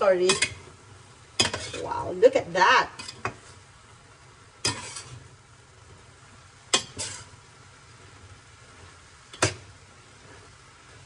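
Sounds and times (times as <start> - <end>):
metal spoon clinking on pan: 0.2 - 0.6, 1.4 - 1.8, 4.6 - 5.2, 6.7 - 7.3.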